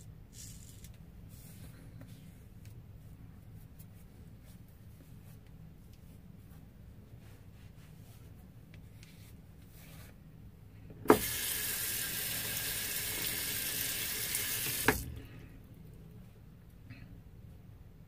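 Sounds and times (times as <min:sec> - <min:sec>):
tap running into sink: 0:11.1 - 0:15.2.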